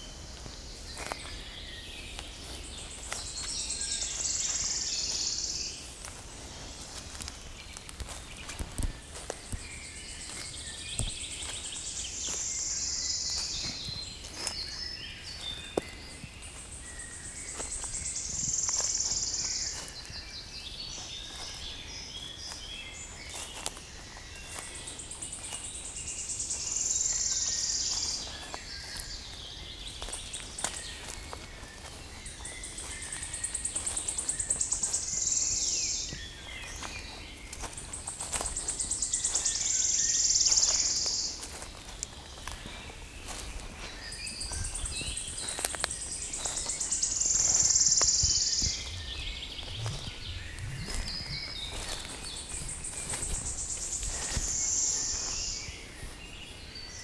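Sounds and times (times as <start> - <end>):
soft bird calls: 0.0 - 57.0.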